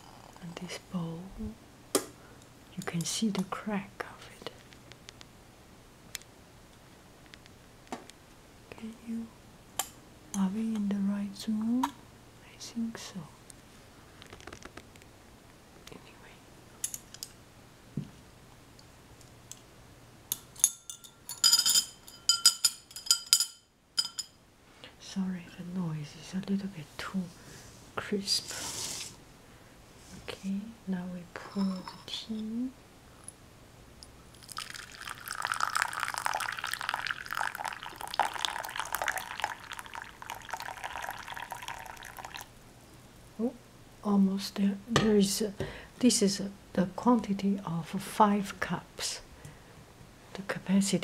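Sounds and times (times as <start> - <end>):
ceramic cutlery clinking: 20.3 - 24.3
tea pouring into cup: 34.3 - 42.5.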